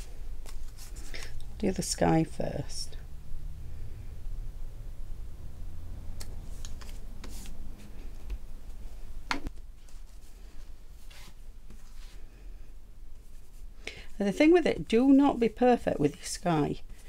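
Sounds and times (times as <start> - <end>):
paper rustling: 0.0 - 1.4, 6.4 - 8.1
low steady hum: 0.0 - 17.0.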